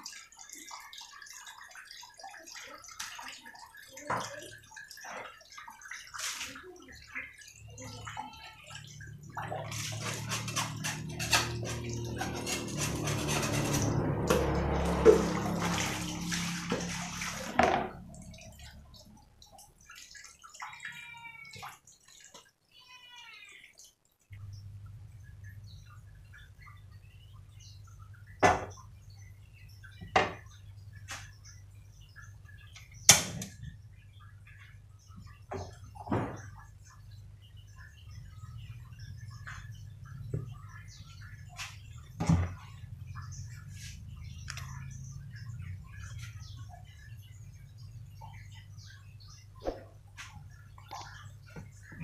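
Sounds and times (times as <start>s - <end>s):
water splashing over dishes: 0.0s - 52.0s.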